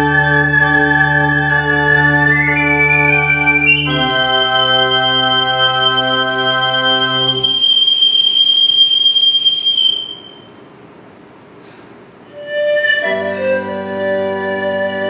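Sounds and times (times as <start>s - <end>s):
pipe organ chord: 0.0s - 7.8s
pan flute note: 0.0s - 10.6s, 12.3s - 15.0s.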